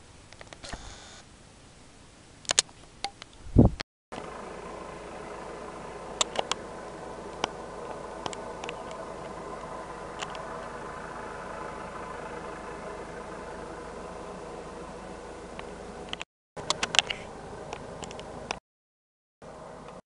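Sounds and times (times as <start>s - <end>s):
distant helicopter engine drone: 4.2s - 18.6s
sharp clicks: 6.2s - 6.6s.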